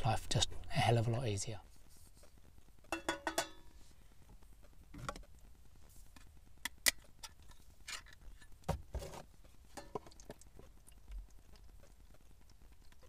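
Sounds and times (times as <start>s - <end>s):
metal pot clanking on stove: 2.9s - 3.6s.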